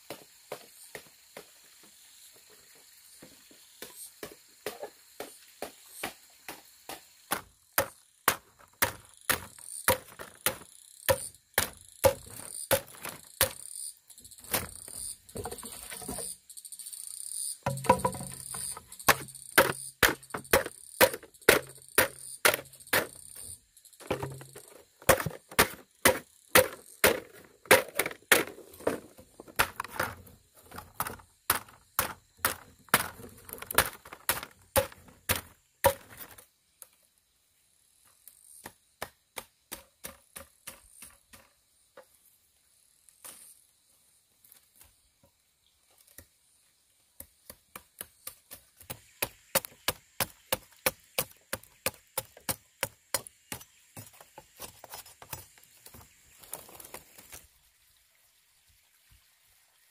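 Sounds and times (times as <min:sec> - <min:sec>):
machete chopping bamboo: 0:03.8 - 0:13.8, 0:17.7 - 0:23.2, 0:24.0 - 0:28.6, 0:31.0 - 0:36.4, 0:38.6 - 0:41.5, 0:47.4 - 0:54.2.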